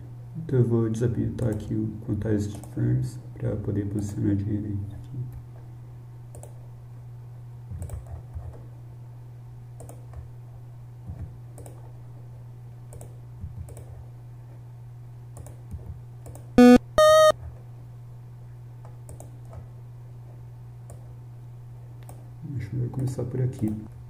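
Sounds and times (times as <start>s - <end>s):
low electrical hum: 0.0s - 24.0s
computer mouse clicking: 6.3s - 6.6s, 7.8s - 8.6s, 9.8s - 10.2s, 12.9s - 14.0s
short musical tones: 16.6s - 17.3s.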